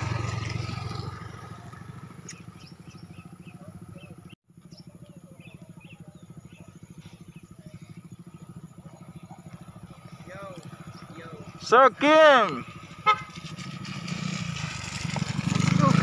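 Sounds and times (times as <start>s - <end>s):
motor scooter engine idling: 0.0s - 16.0s
small birds chirping: 1.4s - 11.8s.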